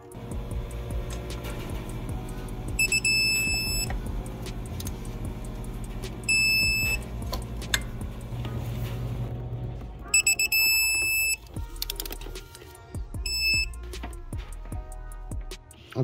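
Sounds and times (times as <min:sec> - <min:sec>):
background music: 0:00.0 - 0:16.0
torque wrench high beeps: 0:02.8 - 0:03.9, 0:06.3 - 0:07.0, 0:10.2 - 0:11.4, 0:13.2 - 0:13.8.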